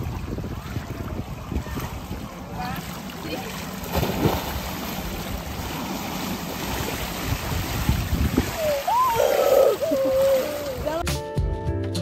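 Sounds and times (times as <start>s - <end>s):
wind on microphone: 0.0s - 2.8s, 6.4s - 11.0s
pool water splashing: 0.0s - 11.1s.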